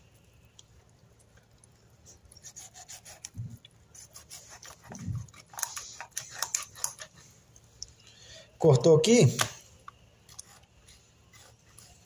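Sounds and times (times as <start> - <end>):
knife scraping fish scales: 2.1 - 7.4, 10.2 - 12.0.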